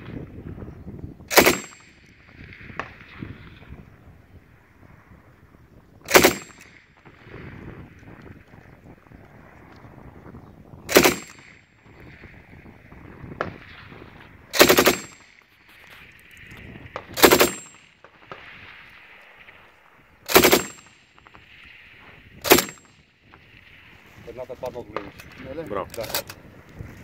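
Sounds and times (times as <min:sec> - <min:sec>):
machine gun firing bursts: 0:01.3 - 0:01.9, 0:06.1 - 0:06.6, 0:10.9 - 0:11.6, 0:14.5 - 0:15.3, 0:17.2 - 0:17.8, 0:20.3 - 0:21.0, 0:22.4 - 0:22.9.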